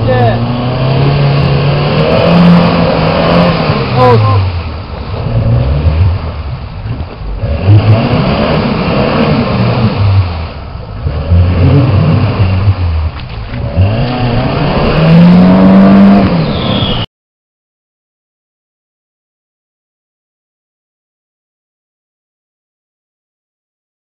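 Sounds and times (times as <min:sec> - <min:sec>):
off-road vehicle engine revving: 0:00.0 - 0:17.1
wheels splashing water: 0:00.0 - 0:17.1.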